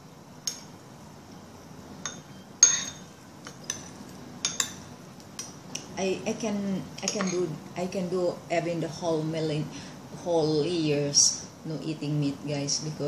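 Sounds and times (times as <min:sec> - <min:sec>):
cutlery clinking on ceramic bowl: 0:02.0 - 0:05.5, 0:07.0 - 0:07.5.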